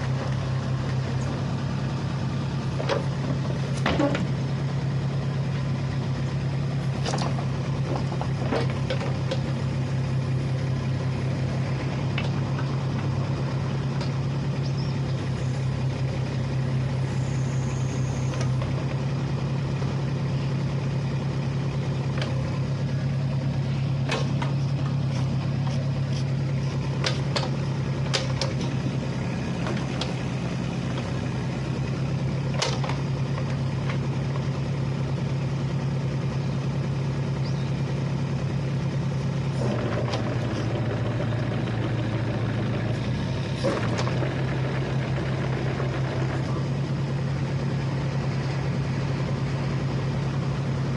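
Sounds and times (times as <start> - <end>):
excavator diesel engine running: 0.0 - 50.9.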